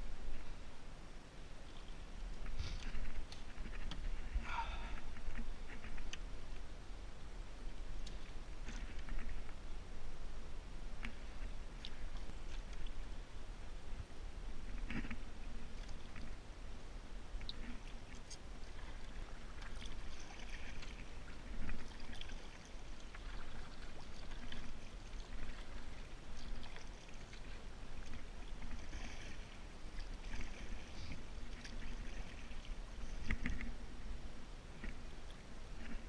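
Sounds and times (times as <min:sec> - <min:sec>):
paddle splashing in water: 0:18.6 - 0:33.8.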